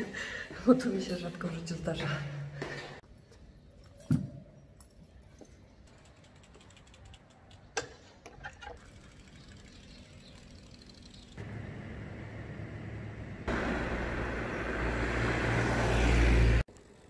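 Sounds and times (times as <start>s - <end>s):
bicycle freewheel ticking: 5.9s - 7.7s, 8.8s - 11.4s, 16.7s - 17.0s.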